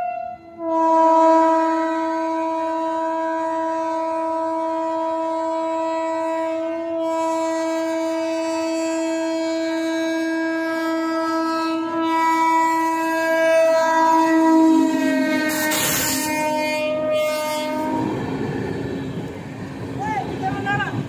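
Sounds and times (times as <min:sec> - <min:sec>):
locomotive horn blast: 0:00.0 - 0:18.6.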